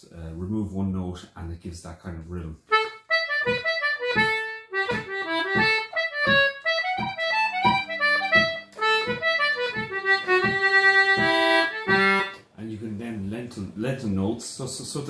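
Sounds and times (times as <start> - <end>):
light low knocks on the beat: 2.7 - 12.5.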